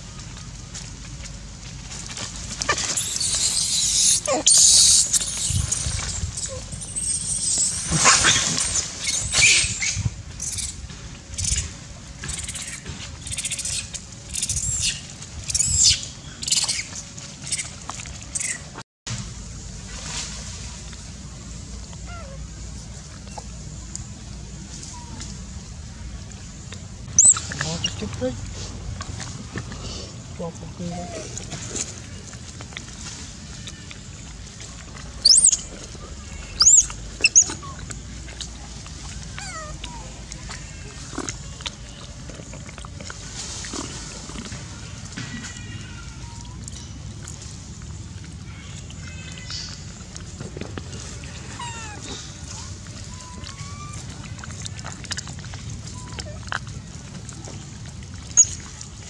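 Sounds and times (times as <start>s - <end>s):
monkeys screaming: 2.7s - 10.7s, 27.2s - 28.0s, 35.2s - 35.6s, 36.6s - 37.8s, 51.4s - 52.3s, 53.1s - 54.1s.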